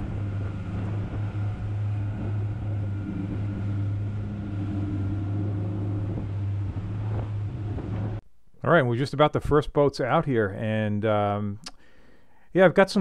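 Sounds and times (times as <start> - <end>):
boat wake rushing: 0.0 - 8.2
outboard motors droning: 0.0 - 8.2.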